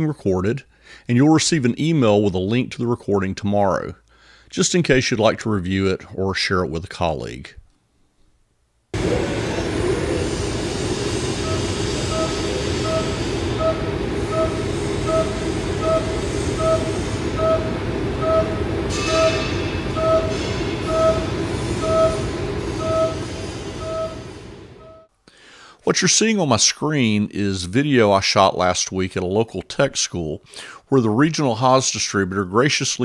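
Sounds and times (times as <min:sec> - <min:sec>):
milling machine cutting steel: 0:09.0 - 0:24.8
pulsing pitched cutting note: 0:09.0 - 0:25.1.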